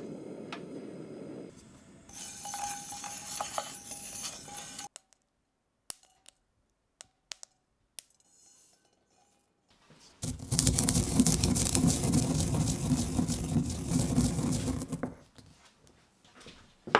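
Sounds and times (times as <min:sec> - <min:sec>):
pestle grinding seeds in mortar: 0:02.1 - 0:05.0, 0:10.2 - 0:15.2.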